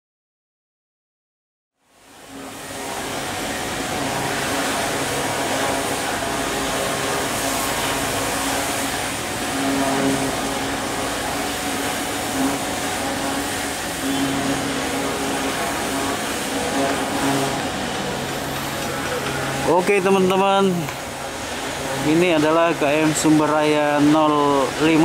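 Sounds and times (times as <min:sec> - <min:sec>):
machinery humming with tones: 0:01.8 - 0:25.0.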